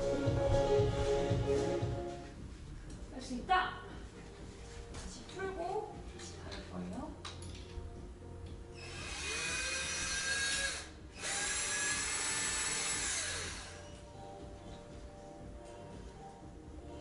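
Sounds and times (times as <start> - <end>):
power drill spinning: 8.7 - 14.0.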